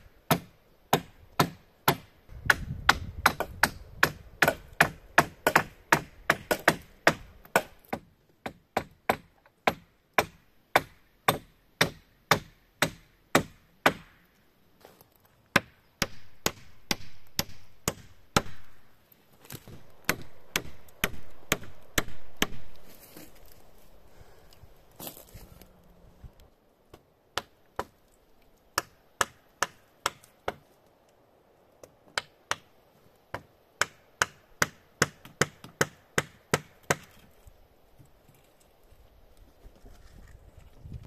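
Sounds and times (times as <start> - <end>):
hatchet chopping wood: 0.3 - 14.2, 15.5 - 18.8, 19.6 - 22.8, 26.9 - 28.0, 28.8 - 30.6, 33.3 - 37.3.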